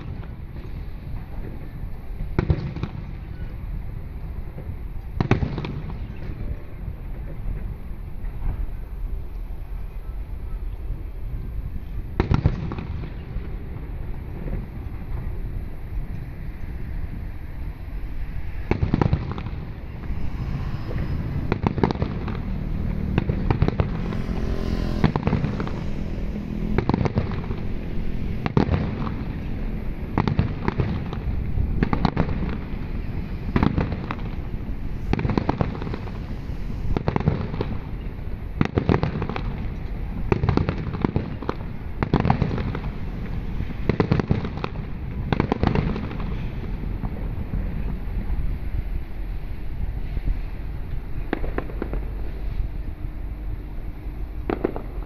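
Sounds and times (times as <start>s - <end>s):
firework shells bursting: 18.5s - 46.4s.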